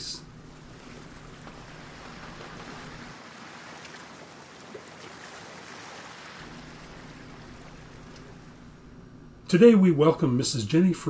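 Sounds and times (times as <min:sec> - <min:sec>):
waves washing onto a beach: 0:00.8 - 0:08.5.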